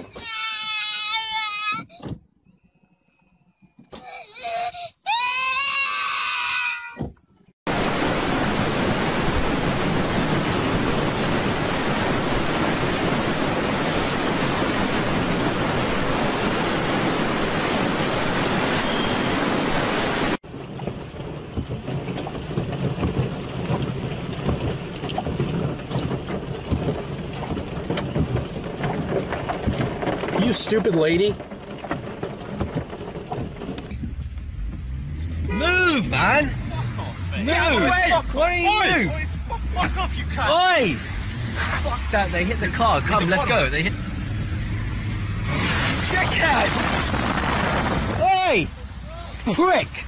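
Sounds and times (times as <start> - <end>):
small child crying: 0.2 - 2.0, 4.0 - 7.0
heavy rain: 7.7 - 50.0
storm wind: 7.7 - 50.0
hail falling: 20.4 - 34.0, 45.5 - 48.6.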